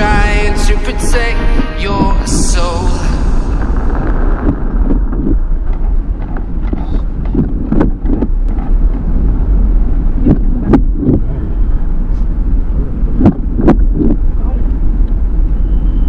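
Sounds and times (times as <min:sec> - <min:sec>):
car engine and tyre rumble: 0:03.3 - 0:16.0.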